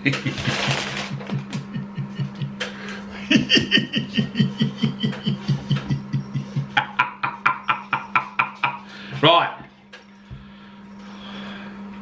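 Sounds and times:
man laughing in chuckles: 0:00.0 - 0:09.0
steady low hum: 0:00.0 - 0:12.0.

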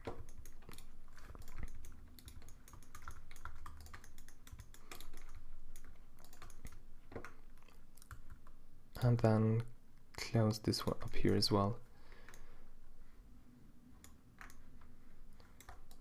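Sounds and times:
computer keyboard clicking: 0:00.0 - 0:08.6, 0:14.0 - 0:14.6, 0:15.5 - 0:16.0.

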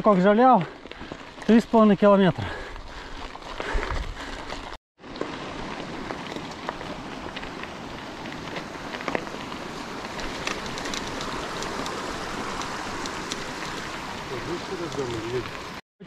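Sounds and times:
mountain stream rushing: 0:05.0 - 0:15.8.

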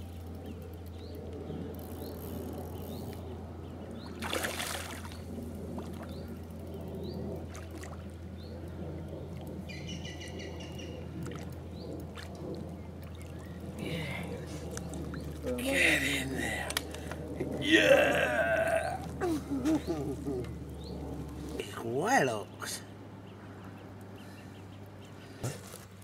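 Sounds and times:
fish splashing at surface: 0:04.2 - 0:05.2.

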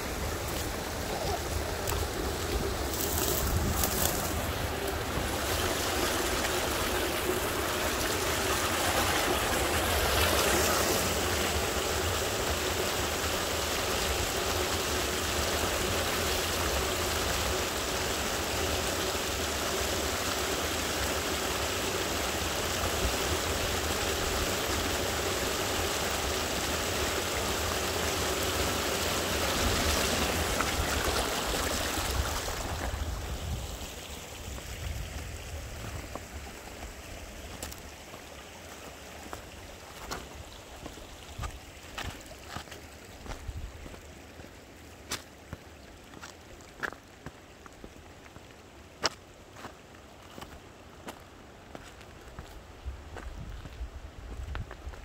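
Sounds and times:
stream running over rocks: 0:00.0 - 0:55.0.

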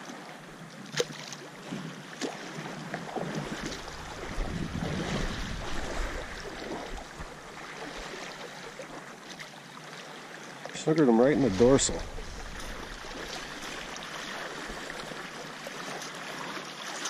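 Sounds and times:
water splashing in shallows: 0:00.0 - 0:17.0
wind buffeting microphone: 0:03.1 - 0:08.2, 0:11.2 - 0:15.3.

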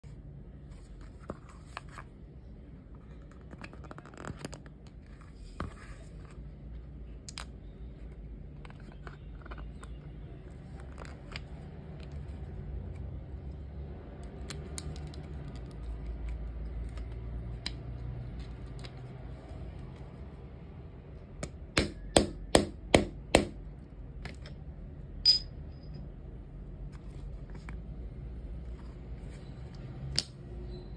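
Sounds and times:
metallic tap with short ring: 0:25.2 - 0:25.5.

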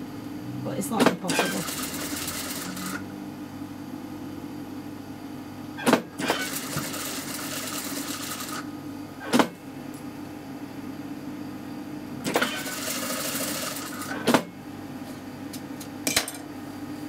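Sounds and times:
sewing machine motor hum: 0:01.0 - 0:03.0, 0:06.1 - 0:08.7, 0:12.2 - 0:14.5
sewing machine needle stitching: 0:01.0 - 0:03.0, 0:06.2 - 0:08.6, 0:12.3 - 0:14.2.

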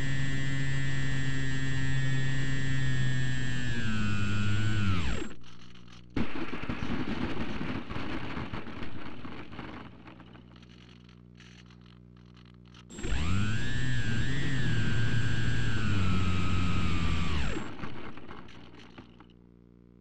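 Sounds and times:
electric motor and propeller whining: 0:00.0 - 0:05.5, 0:12.9 - 0:18.9.

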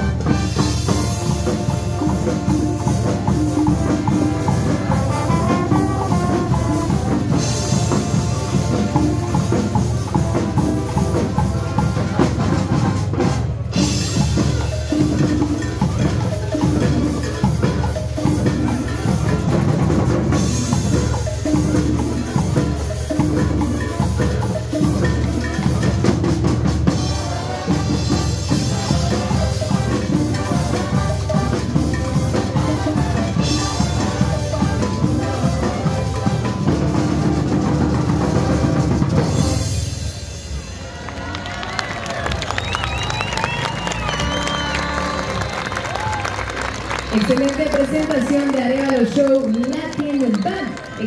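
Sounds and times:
snare drum: 0:00.0 - 0:39.6
marching band playing: 0:00.0 - 0:51.0.

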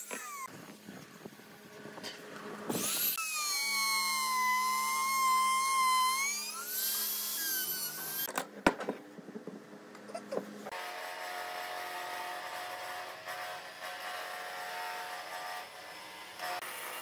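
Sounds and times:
band saw humming: 0:02.7 - 0:08.3
trim router whining: 0:02.7 - 0:08.3.

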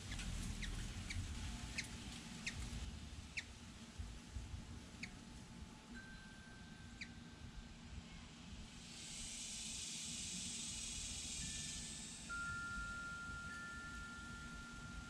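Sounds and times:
faint low rumble: 0:00.0 - 0:06.0
high steady hiss: 0:00.0 - 0:15.0
thin held tone: 0:11.3 - 0:15.0.

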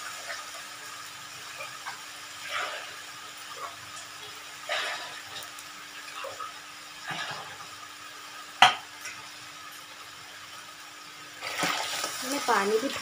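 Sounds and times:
pot hissing on stove: 0:00.0 - 0:13.0.

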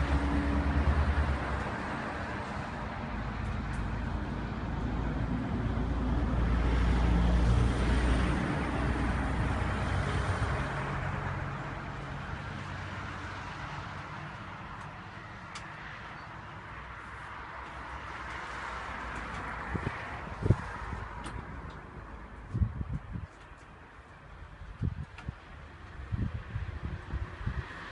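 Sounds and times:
vehicle passing by: 0:00.0 - 0:14.5, 0:26.1 - 0:27.9.

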